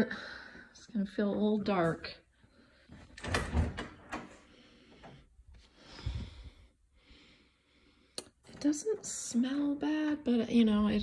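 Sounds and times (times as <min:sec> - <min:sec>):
door knocks and rattles: 0:03.2 - 0:04.4.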